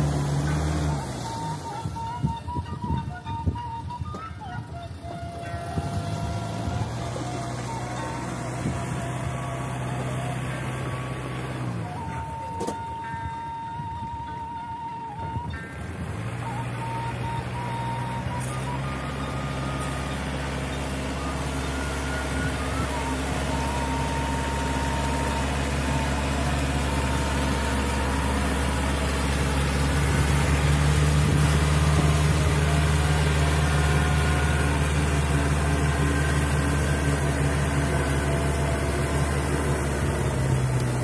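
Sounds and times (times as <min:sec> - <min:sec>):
tractor engine running: 0:00.0 - 0:41.0.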